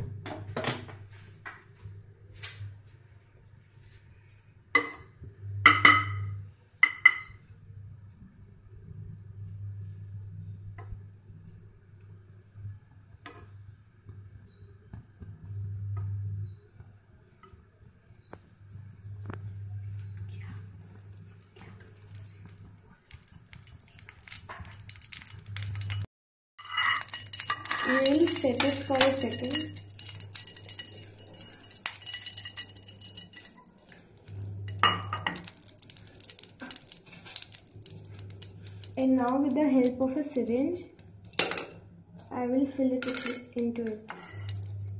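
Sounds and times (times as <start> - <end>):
low steady hum: 0.0 - 44.9
metal spoon clinking in saucepan: 21.6 - 26.0, 26.6 - 39.0, 44.1 - 44.9.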